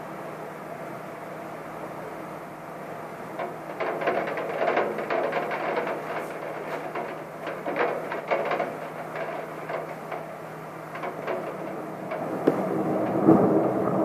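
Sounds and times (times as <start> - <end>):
steady low hum: 0.0 - 14.0
raindrops tapping on window glass: 3.3 - 14.0
thunder rumble: 10.4 - 14.0.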